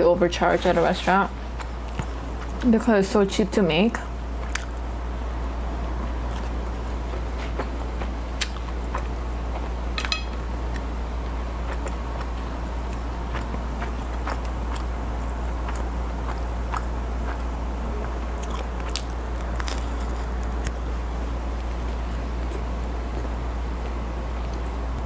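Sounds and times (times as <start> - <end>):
steady low hum: 0.0 - 25.0
person chewing flatbread: 4.4 - 5.2, 6.0 - 20.9.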